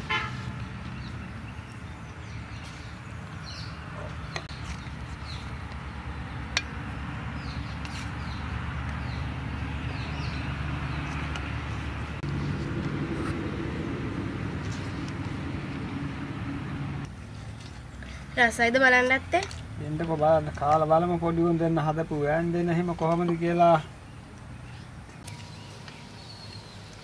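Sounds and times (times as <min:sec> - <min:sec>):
low motor hum: 0:00.0 - 0:17.8.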